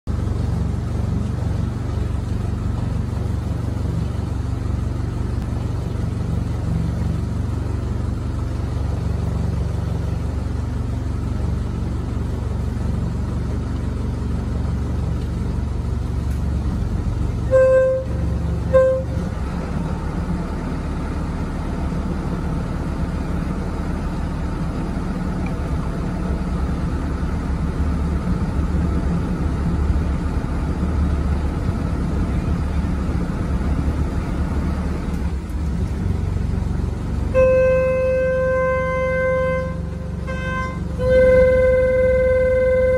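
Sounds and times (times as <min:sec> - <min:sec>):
boat engine idling: 0:00.0 - 0:42.9
boat horn toots: 0:17.2 - 0:20.0, 0:37.0 - 0:42.9.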